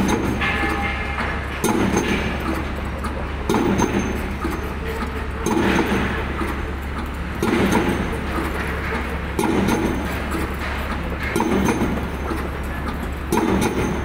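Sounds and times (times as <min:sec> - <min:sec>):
pile hammer blows: 0:00.0 - 0:02.6.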